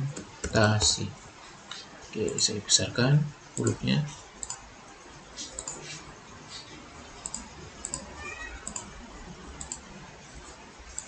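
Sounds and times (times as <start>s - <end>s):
computer mouse clicking: 3.6s - 3.8s, 4.4s - 4.6s, 5.4s - 6.0s, 7.2s - 8.9s, 9.6s - 9.9s.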